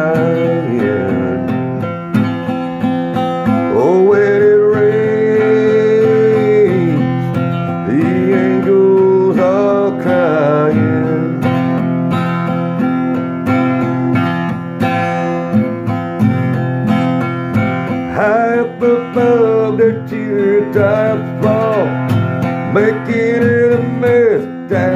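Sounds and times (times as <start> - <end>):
man singing: 0.0 - 2.0, 3.4 - 11.9, 18.0 - 24.9
acoustic guitar strumming: 0.0 - 24.9.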